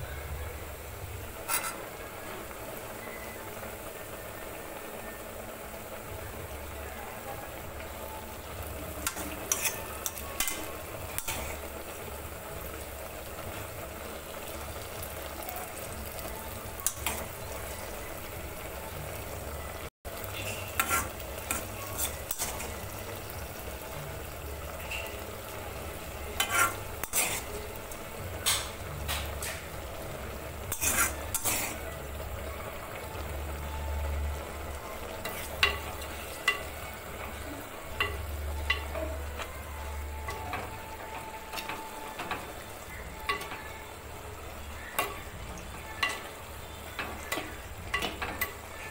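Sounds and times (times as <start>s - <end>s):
dal simmering and sizzling: 0.0s - 48.9s
ladle stirring: 1.4s - 2.0s, 8.6s - 12.0s, 20.2s - 23.6s, 26.0s - 29.7s, 30.6s - 32.0s
metal ladle clinking against pot: 9.0s - 11.6s, 28.4s - 29.6s, 46.0s - 48.6s.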